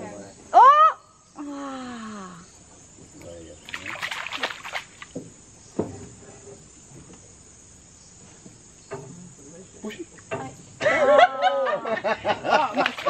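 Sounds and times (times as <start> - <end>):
faint high insect buzz: 0.0 - 13.0
fishing pole splashing water: 3.6 - 5.2, 12.7 - 13.0.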